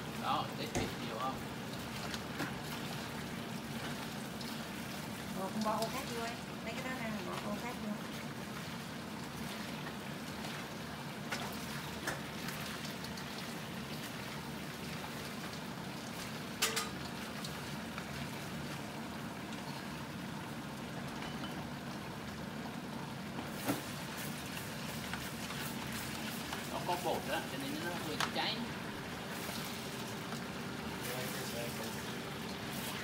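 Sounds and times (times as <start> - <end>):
food sizzling in oil: 0.0 - 33.0
metal utensil clinking on pan: 16.6 - 17.0.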